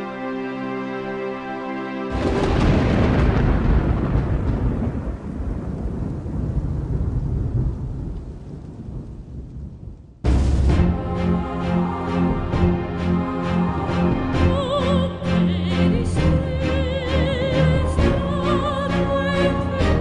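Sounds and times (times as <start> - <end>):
rolling thunder: 2.1 - 14.6.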